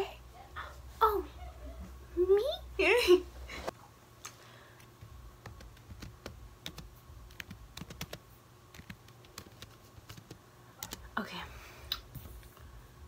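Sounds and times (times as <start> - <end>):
laptop keys clicking: 5.4 - 11.1.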